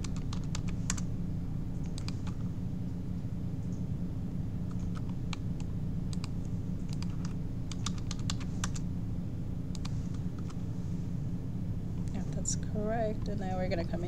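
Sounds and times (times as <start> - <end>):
keyboard and mouse clicking: 0.0 - 1.0, 1.8 - 2.4, 4.7 - 8.8, 9.7 - 10.6
steady low hum: 0.0 - 14.0.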